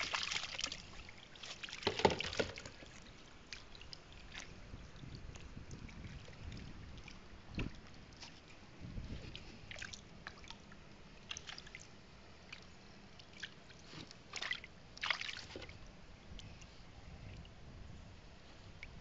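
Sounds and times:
small water splashes: 0.0s - 8.6s, 9.3s - 17.6s
stream trickling over stones: 0.0s - 8.6s.

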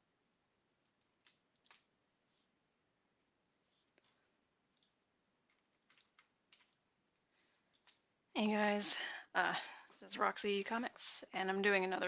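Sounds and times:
faint computer clicks: 7.7s - 8.1s.

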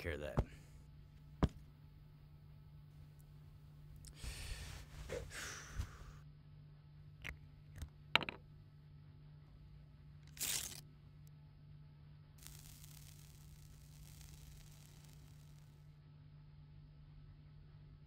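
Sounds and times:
steady low hum: 0.0s - 18.0s
short hiss: 4.1s - 6.2s, 10.3s - 10.8s, 12.4s - 15.8s
plastic bottle crinkling: 10.3s - 10.8s.

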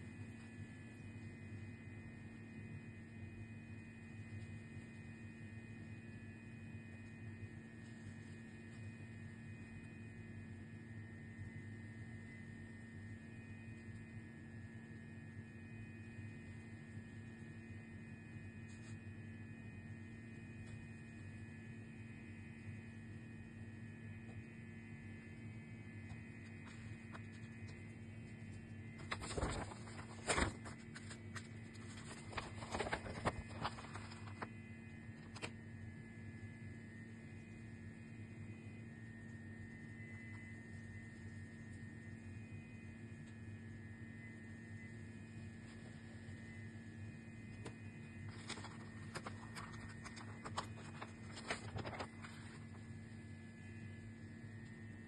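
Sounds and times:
faint steady hum: 0.0s - 55.0s
page turning: 26.1s - 34.5s, 35.2s - 35.5s, 47.5s - 52.9s
paper rustling and crackling: 26.1s - 34.5s, 35.2s - 35.5s, 47.5s - 52.9s.

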